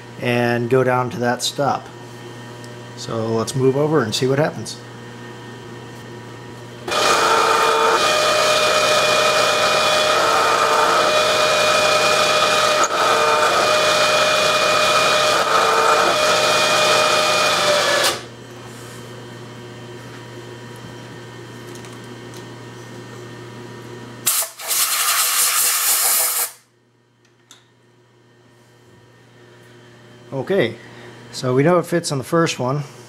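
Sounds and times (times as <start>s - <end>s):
milling machine whine: 0.0s - 22.5s
spindle low hum: 0.0s - 24.2s, 26.7s - 33.0s
compressed air blast: 24.2s - 26.6s.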